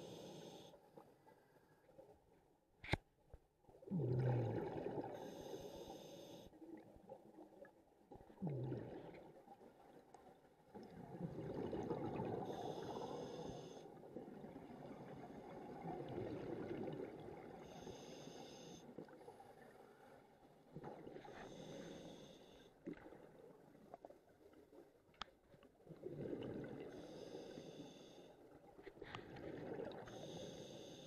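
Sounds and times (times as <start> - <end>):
hissing inhale through regulator: 0.0 - 0.8, 5.1 - 6.5, 12.4 - 13.9, 17.6 - 18.9, 21.3 - 22.7, 26.9 - 28.4, 30.0 - 31.0
exhaled bubbles rumbling underwater: 3.7 - 5.4, 6.6 - 18.0, 25.8 - 27.8, 29.2 - 30.5.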